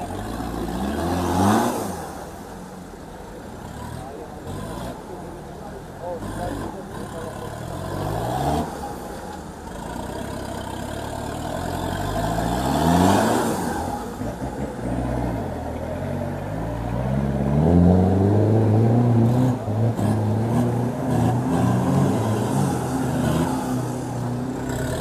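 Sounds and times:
engine revving under load: 0.0 - 2.4, 10.9 - 15.7, 16.3 - 25.0.

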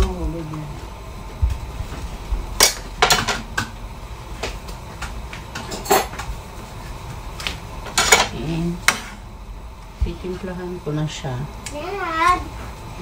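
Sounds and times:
metal utensils clinking on pans: 5.6 - 6.2.

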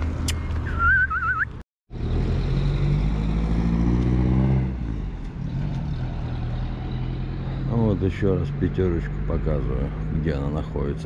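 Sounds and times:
car engine accelerating: 0.0 - 11.0
low street rumble: 0.0 - 11.0
warbling whistle-like sound: 0.7 - 1.6.

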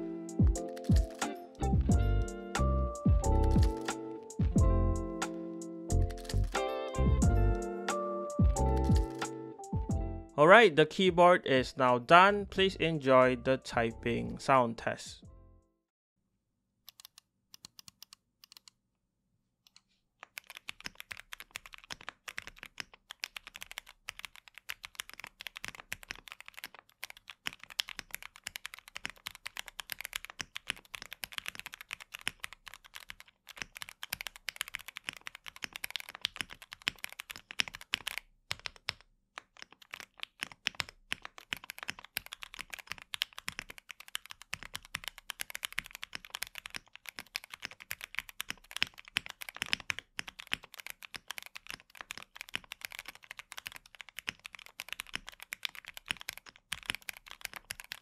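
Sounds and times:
mechanical keyboard typing: 0.3 - 1.6, 3.1 - 4.6, 5.9 - 7.1, 8.4 - 9.3, 16.9 - 18.7, 19.7 - 58.0.

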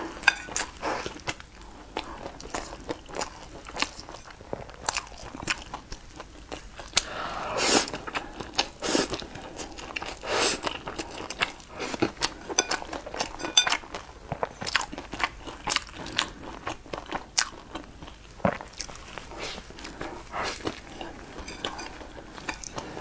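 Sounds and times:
slurping noodles: 7.0 - 8.0
wet chewing: 7.8 - 23.0.

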